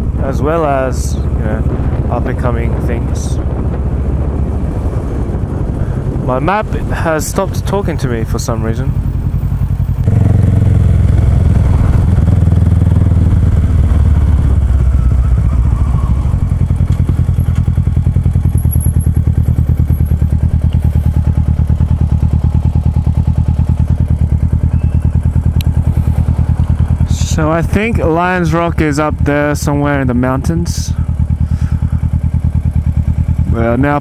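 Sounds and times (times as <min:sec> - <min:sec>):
motorcycle engine running: 0:00.0 - 0:34.0.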